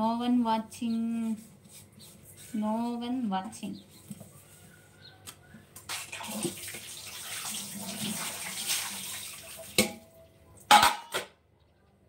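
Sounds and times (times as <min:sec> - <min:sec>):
tap water running: 0:05.8 - 0:10.1.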